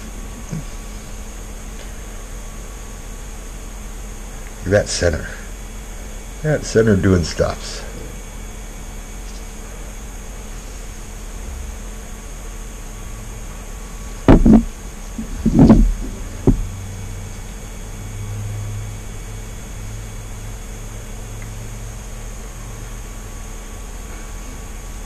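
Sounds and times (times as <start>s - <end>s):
steady background hum: 0.0s - 25.0s
loud sharp knocks and bumps: 14.3s - 16.7s.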